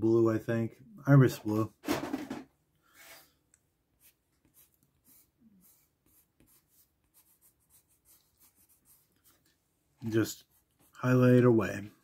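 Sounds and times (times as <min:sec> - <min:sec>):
pencil scratching on paper: 0:04.0 - 0:09.5.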